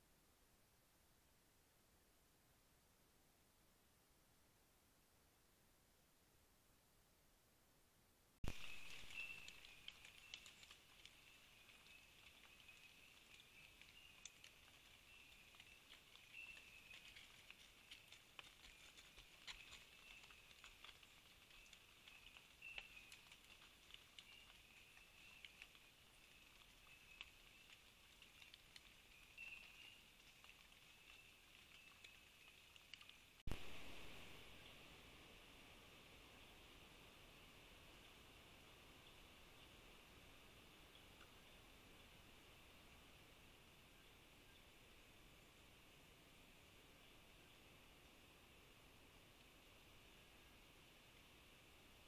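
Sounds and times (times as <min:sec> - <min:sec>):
light ticks and rustles: 0:08.4 - 0:33.6, 0:37.8 - 0:52.0.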